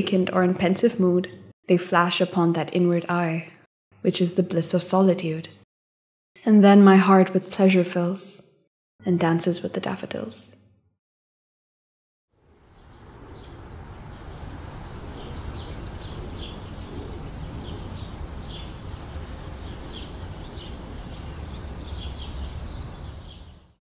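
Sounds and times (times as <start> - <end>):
steady low rumble: 12.5 - 22.6
small birds chirping: 12.5 - 23.8.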